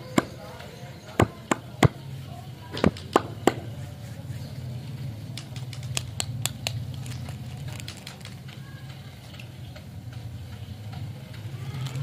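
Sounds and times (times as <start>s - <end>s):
plastic wrapper crinkling: 5.7s - 8.4s.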